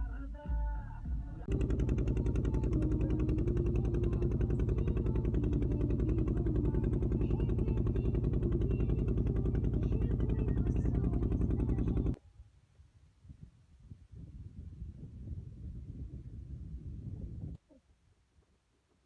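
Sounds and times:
engine running with rapid throb: 0.0 - 12.2.

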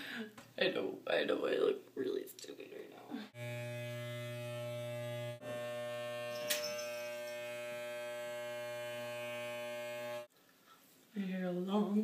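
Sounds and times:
electric hair clippers buzzing: 3.4 - 10.3.

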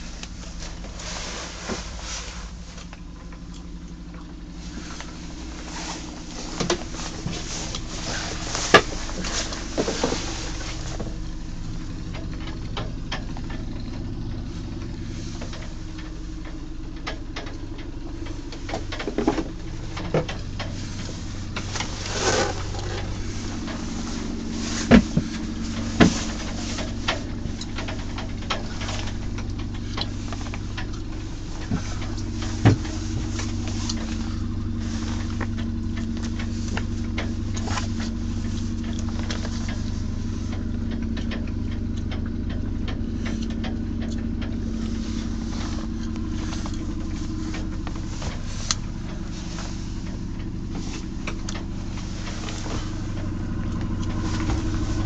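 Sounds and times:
boat engine humming: 0.0 - 55.0.

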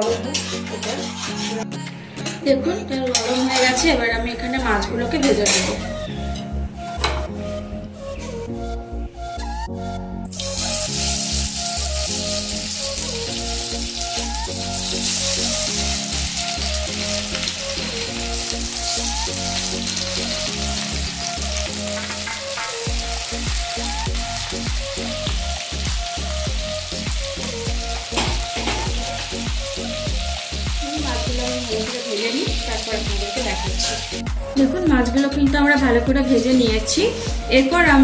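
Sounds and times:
fish sizzling in oil: 10.3 - 34.7.

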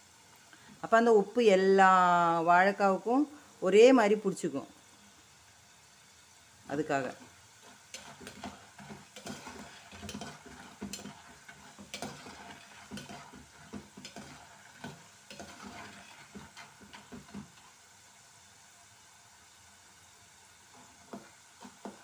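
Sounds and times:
banana slices sizzling in oil: 0.0 - 22.0
oil bubbling: 4.5 - 22.0
skimmer scraping and knocking pot: 6.9 - 17.7.

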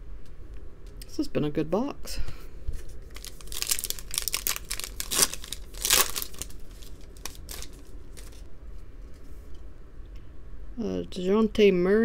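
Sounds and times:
foil wrapper tearing and crinkling: 3.0 - 8.5.

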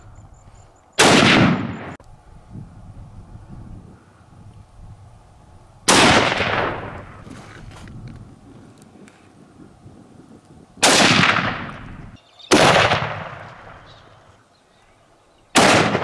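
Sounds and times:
gunshots with echo: 1.0 - 2.0, 5.9 - 7.0, 10.8 - 11.9, 12.5 - 13.8, 15.6 - 16.0.

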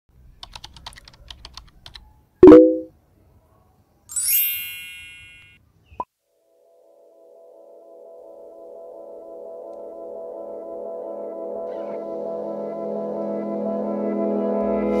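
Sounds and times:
rapid typing clicks: 0.4 - 2.0
bright ringing chime: 4.1 - 5.6.

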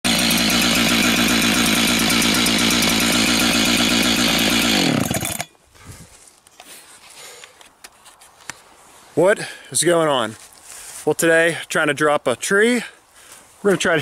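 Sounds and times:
chainsaw running and winding down: 0.0 - 5.5.

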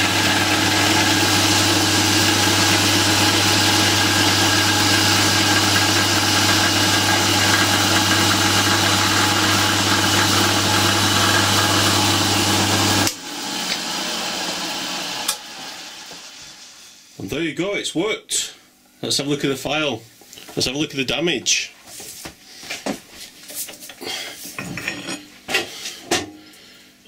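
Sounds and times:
drilling machine running: 0.0 - 16.7.

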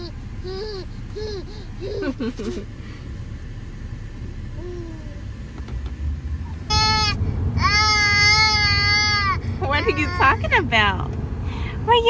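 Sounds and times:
baby vocalizing: 0.0 - 2.1
car road rumble: 0.0 - 12.0.

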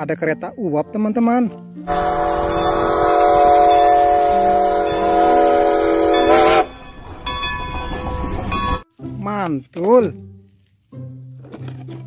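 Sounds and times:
steam train whistle: 1.9 - 6.9.

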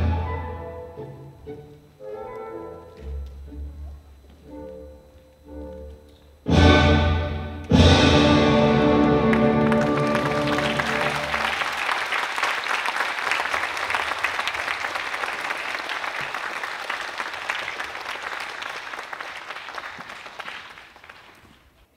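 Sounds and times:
audience applauding: 8.9 - 21.8.

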